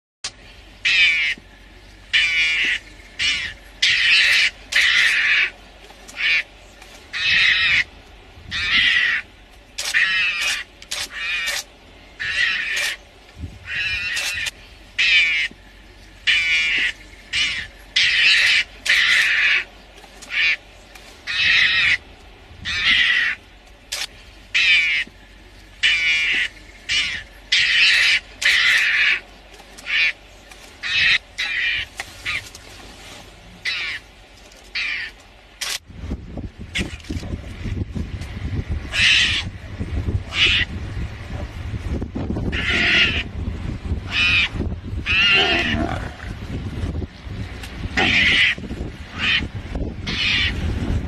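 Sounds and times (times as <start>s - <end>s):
mongoose buzzy calls: 40.3s - 40.8s, 48.0s - 50.6s.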